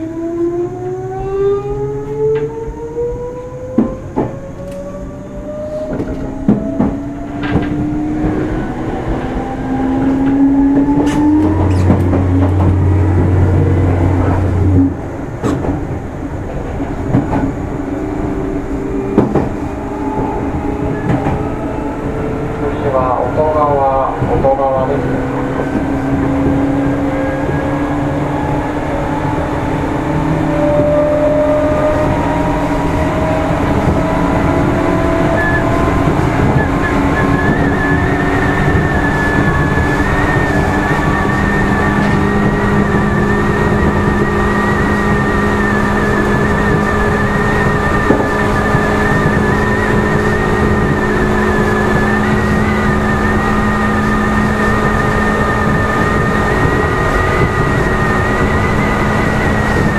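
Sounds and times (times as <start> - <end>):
train rumble: 0.0 - 59.9
traction motor and gear whine: 17.2 - 59.9.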